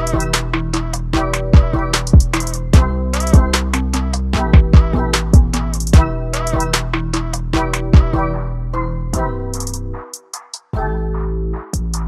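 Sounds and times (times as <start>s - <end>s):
electronic hip-hop beat: 0.0s - 12.0s
synth chords: 0.0s - 12.0s.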